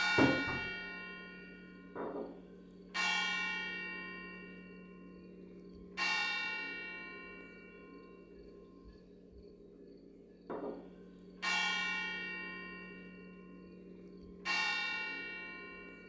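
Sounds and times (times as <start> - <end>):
large bell tolling: 0.0 - 5.1
steady low hum: 3.6 - 11.5.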